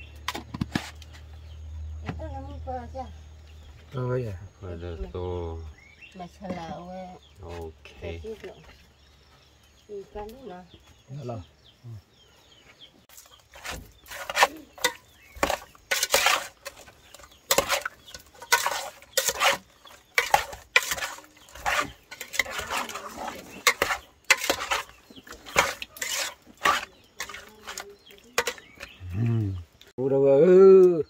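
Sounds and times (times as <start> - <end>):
spoon clinking and scraping bowl: 13.6 - 29.0.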